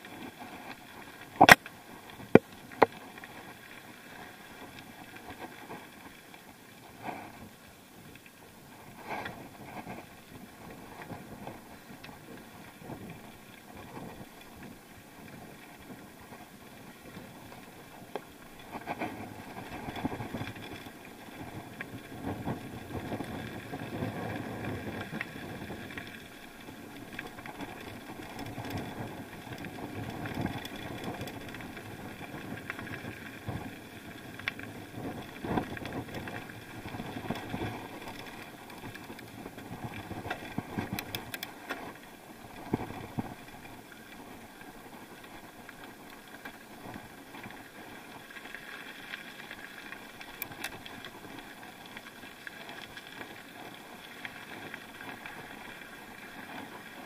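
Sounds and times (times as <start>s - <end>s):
bike rolling on dirt road: 0.0s - 57.0s
bike rattles and knocks: 27.3s - 33.0s.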